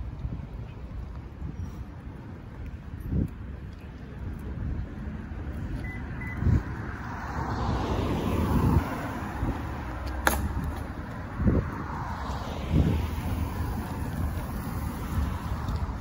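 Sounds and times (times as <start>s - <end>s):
wind rumble on microphone: 0.0s - 16.0s
car driving past: 6.8s - 10.0s.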